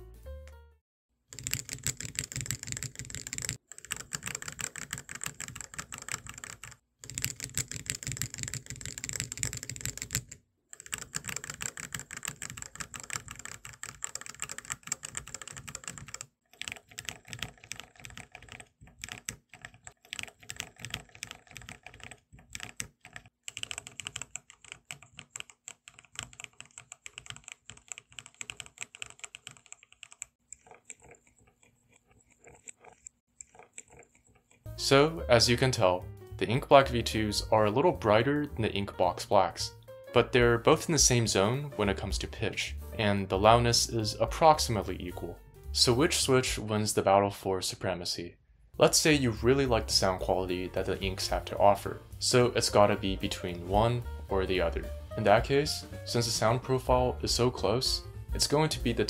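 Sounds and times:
mechanical keyboard typing: 0:01.3 - 0:34.7.

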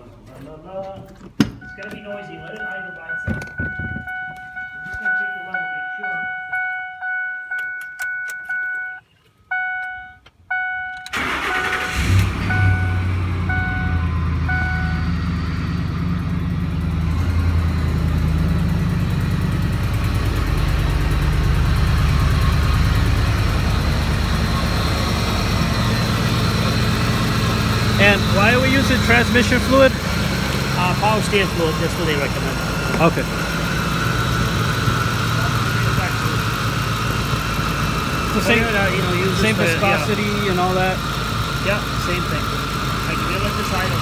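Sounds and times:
truck engine starting and idling: 0:00.1 - 0:44.0
dashboard warning chime: 0:01.6 - 0:15.2.

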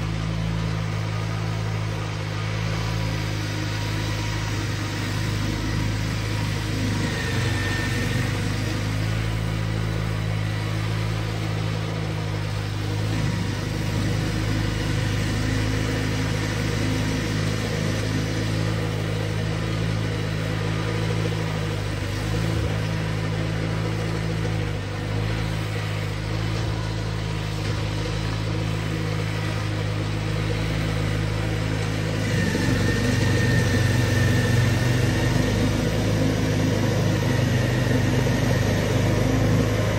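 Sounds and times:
garden tractor engine running: 0:00.0 - 0:39.9
snowblower working through snow: 0:00.0 - 0:39.9
faint high whine: 0:28.3 - 0:39.9.

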